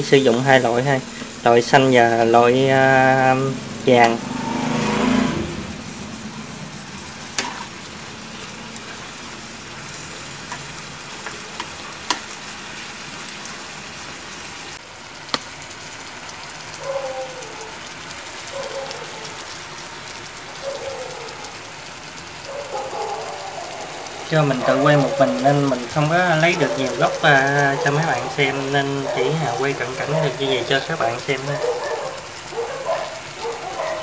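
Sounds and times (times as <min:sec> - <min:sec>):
food sizzling in hot oil: 0:00.0 - 0:34.0
chopsticks clicking on wok: 0:10.5 - 0:12.3.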